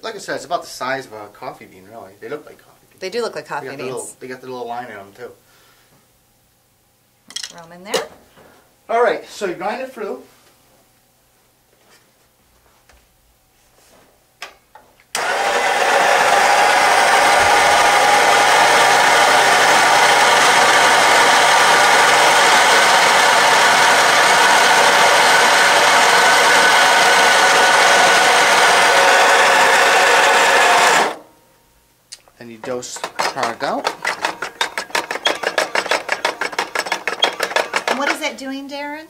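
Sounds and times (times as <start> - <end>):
burr grinder whining and grinding: 15.2 - 31.3, 32.6 - 38.3.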